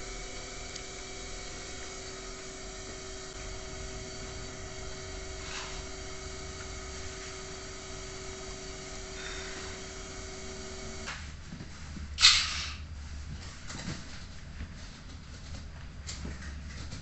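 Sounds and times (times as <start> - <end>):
steady hum and hiss: 0.0 - 17.0.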